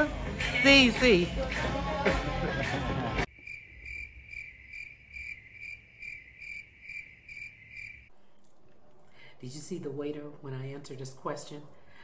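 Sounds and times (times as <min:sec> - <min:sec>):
cricket chirping: 0:03.3 - 0:08.1.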